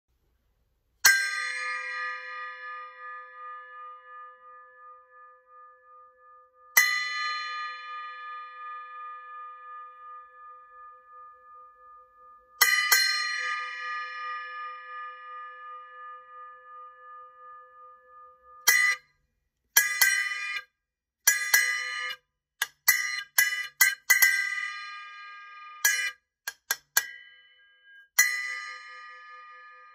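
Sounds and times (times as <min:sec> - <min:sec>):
bell cymbal struck with drumstick: 0:21.3 - 0:22.2, 0:22.9 - 0:26.2.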